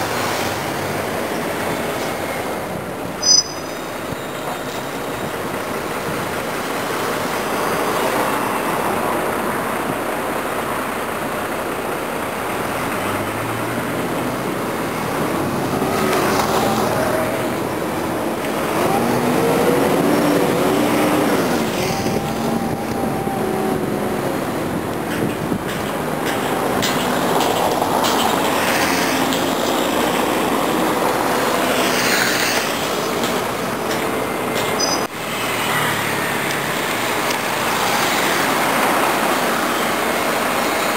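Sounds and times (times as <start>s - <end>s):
road traffic: 0.0s - 40.9s
wind: 0.0s - 40.9s
engine accelerating: 12.6s - 32.4s.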